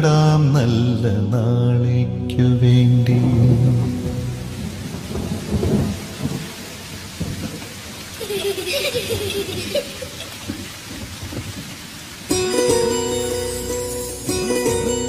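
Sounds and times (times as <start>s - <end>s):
low rumble: 1.8s - 6.8s
stream water splashing: 5.9s - 13.3s.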